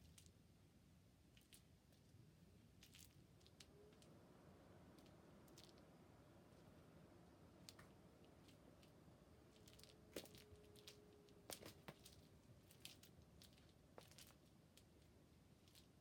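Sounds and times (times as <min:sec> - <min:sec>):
faint clicks and rustles: 0:01.3 - 0:04.2, 0:07.6 - 0:16.0.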